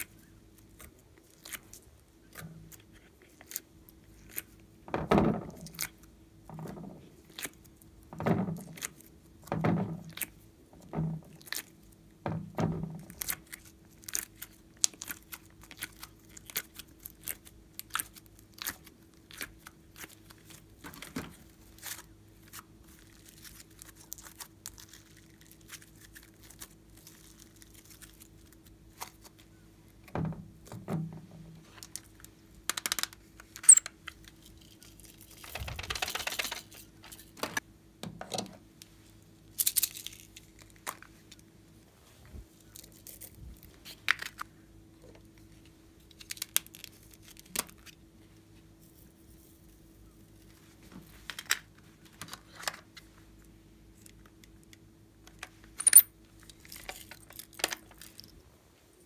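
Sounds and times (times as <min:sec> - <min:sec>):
faint steady hum: 0:00.0 - 0:59.0
sticky clicks and crackles: 0:31.8 - 0:37.3, 0:46.1 - 0:48.0.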